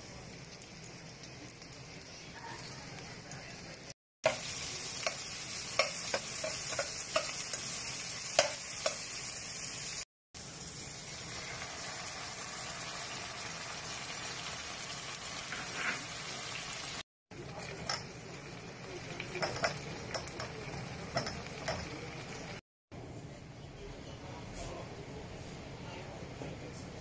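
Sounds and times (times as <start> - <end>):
vegetables sizzling in hot oil: 0.0 - 22.6
metal spatula scraping a pan: 15.4 - 16.3.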